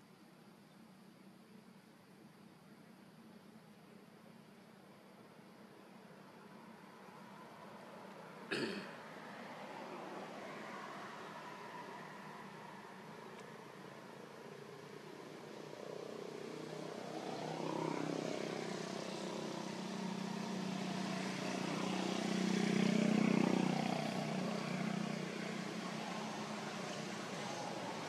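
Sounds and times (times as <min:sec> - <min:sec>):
engine passing by: 0:06.4 - 0:28.0.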